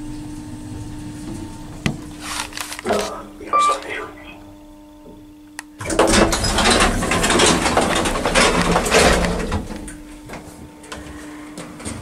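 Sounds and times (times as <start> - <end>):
elevator door machinery clattering: 5.8 - 12.0.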